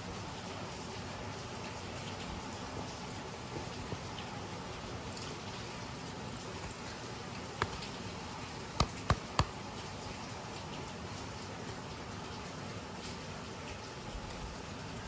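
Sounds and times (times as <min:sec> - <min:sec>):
denim rustling: 0:08.7 - 0:09.5
sharp clicks: 0:08.8 - 0:09.6.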